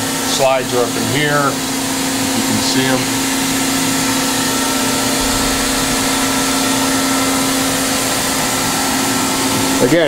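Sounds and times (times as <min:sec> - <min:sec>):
machine hum: 0:00.0 - 0:10.0.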